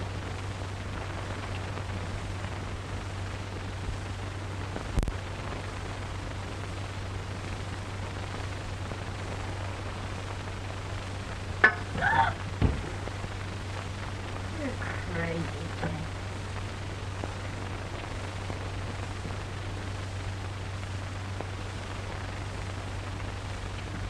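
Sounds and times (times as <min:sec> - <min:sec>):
film soundtrack hiss and hum: 0:00.0 - 0:24.0
thump: 0:11.6 - 0:13.0
woman's startled cry: 0:12.0 - 0:12.4.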